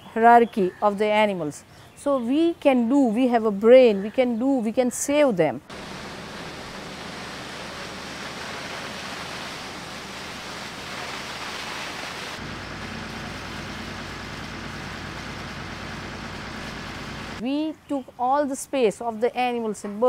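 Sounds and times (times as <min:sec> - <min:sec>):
high-pressure water jet hissing: 0:05.7 - 0:17.4
pump engine running: 0:05.7 - 0:17.4.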